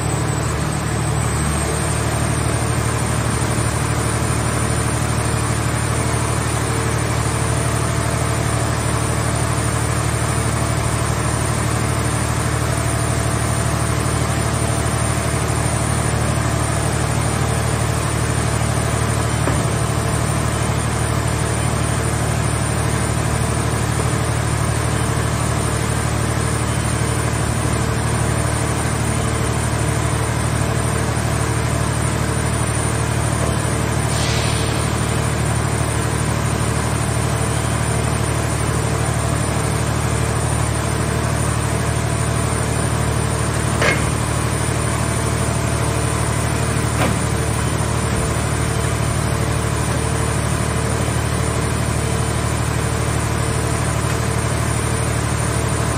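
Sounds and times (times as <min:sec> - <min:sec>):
hydraulic power unit drone: 0:00.0 - 0:55.9
sharp knocks: 0:19.4 - 0:19.8, 0:43.8 - 0:44.2
short hiss: 0:34.1 - 0:34.9.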